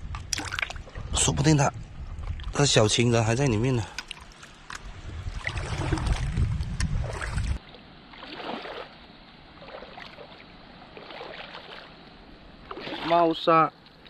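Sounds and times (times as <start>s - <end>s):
wind rumble on microphone: 0.0s - 7.6s
seawater sloshing and trickling: 0.0s - 14.0s.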